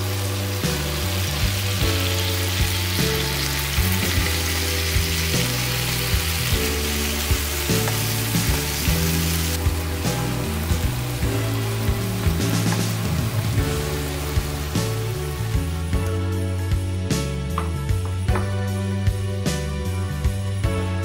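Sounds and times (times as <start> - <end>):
food sizzling in a frying pan: 0.0 - 16.0
background music: 0.0 - 21.0.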